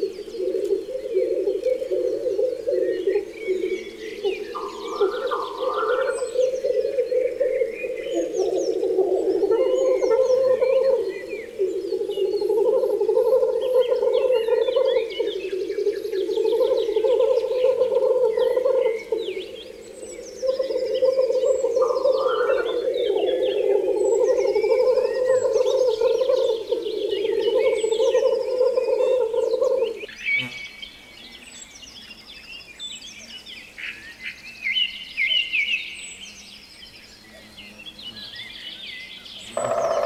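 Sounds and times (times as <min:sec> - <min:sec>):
frogs trilling: 0:00.0 - 0:30.1, 0:39.4 - 0:40.0
birds chirping and singing: 0:00.0 - 0:40.0.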